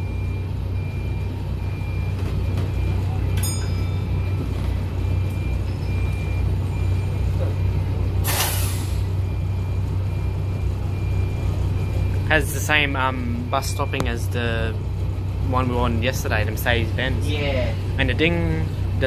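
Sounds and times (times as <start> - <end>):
bus diesel engine running: 0.0 - 19.0
air brake hiss: 8.2 - 9.1.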